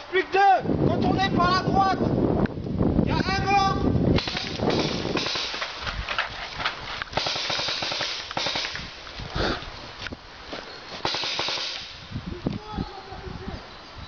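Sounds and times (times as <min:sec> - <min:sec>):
bursts of hissing: 0:04.1 - 0:06.0, 0:06.7 - 0:12.2
paintball markers firing: 0:04.2 - 0:08.9, 0:11.0 - 0:12.0.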